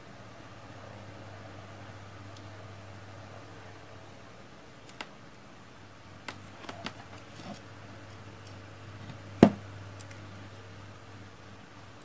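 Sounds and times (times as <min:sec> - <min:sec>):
breadboard knocking on mat: 0:09.4 - 0:09.6.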